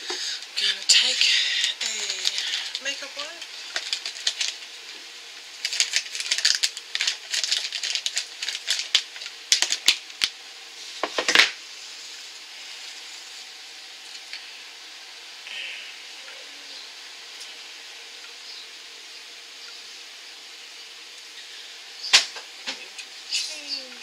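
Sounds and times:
plastic packet crinkling: 0.4 - 4.9, 5.5 - 10.4.

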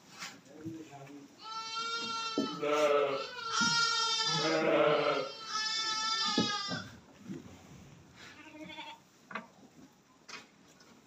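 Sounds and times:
goats or sheep bleating: 1.4 - 6.9, 8.2 - 9.0.

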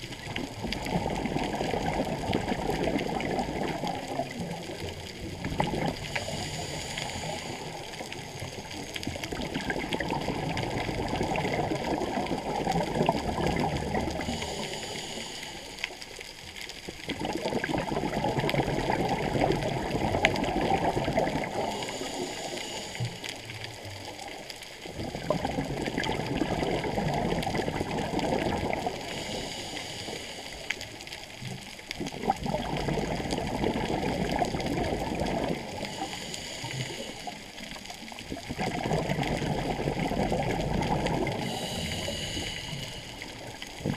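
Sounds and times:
bubbling exhalation underwater: 0.0 - 6.4, 9.3 - 14.4, 17.0 - 21.8, 24.9 - 29.2, 32.0 - 36.0, 38.1 - 42.0, 43.3 - 43.9
regulator hissing inhale: 6.0 - 9.1, 14.2 - 16.1, 21.6 - 23.4, 29.0 - 31.0, 35.7 - 37.6, 41.4 - 43.6.

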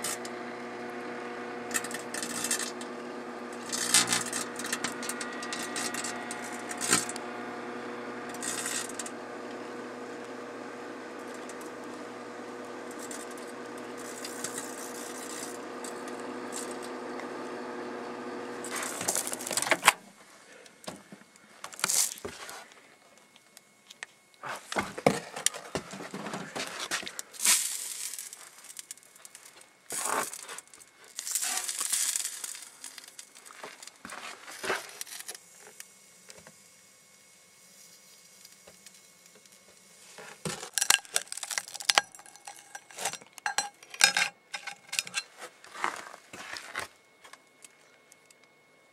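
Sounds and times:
sharp crackles of burning: 0.0 - 19.7, 27.2 - 43.0
microwave oven humming: 0.0 - 21.3
rustling crinkling and knocks: 23.9 - 35.0.

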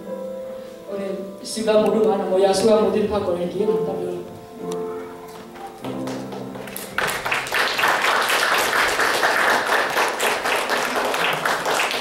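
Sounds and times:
audience applause: 5.8 - 12.0.

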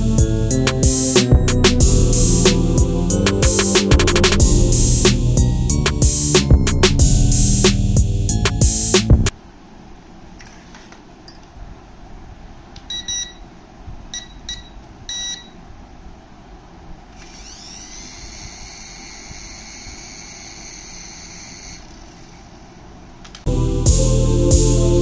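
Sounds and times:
short electronic beeps: 12.9 - 13.5, 14.2 - 15.6
electric rotor motors whining: 17.1 - 22.6.

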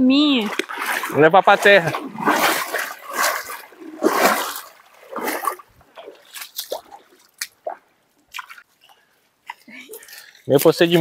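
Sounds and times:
river water splashing: 0.0 - 11.0
short wet slaps: 0.4 - 8.7.

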